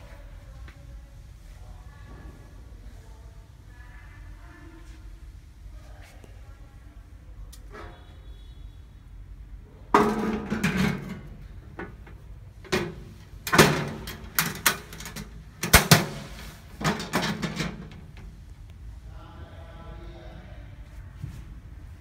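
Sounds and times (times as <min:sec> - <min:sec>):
metal toolbox lid clunk: 0:10.0 - 0:11.9, 0:12.7 - 0:18.0.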